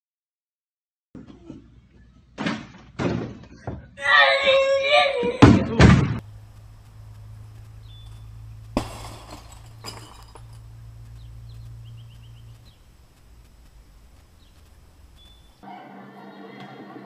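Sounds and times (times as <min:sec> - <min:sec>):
faint birds chirping: 0:06.2 - 0:17.0
basketball crash with glassy ring: 0:08.8 - 0:10.7.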